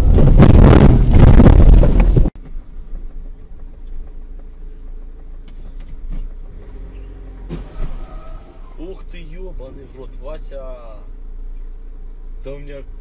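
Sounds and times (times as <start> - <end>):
car cabin hum: 0.0 - 13.0
wind and road noise: 0.0 - 13.0.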